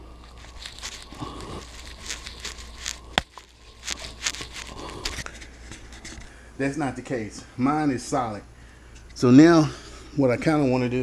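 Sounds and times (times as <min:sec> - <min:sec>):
camera handling rustling: 0:00.2 - 0:06.3.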